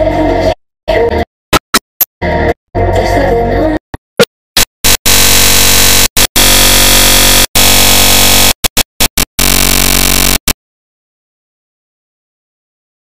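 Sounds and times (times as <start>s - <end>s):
harsh digital glitch noise: 4.6s - 10.6s.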